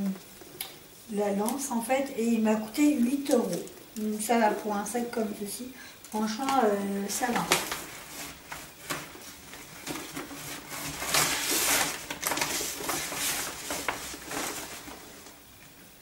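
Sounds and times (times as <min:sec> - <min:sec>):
rustling and knocks of handled items: 0:07.2 - 0:15.4.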